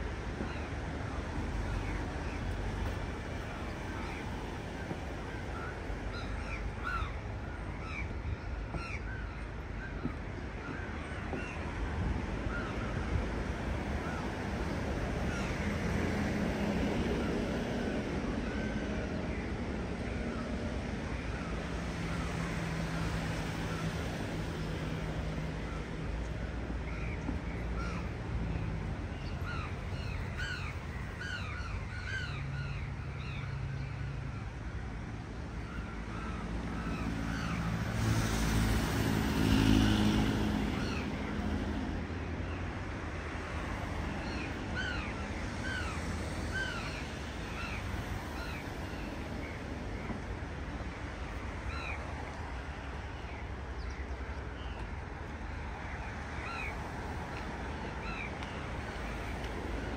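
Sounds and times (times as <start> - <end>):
city traffic hum: 0.0 - 59.9
vehicle passing: 37.1 - 42.2.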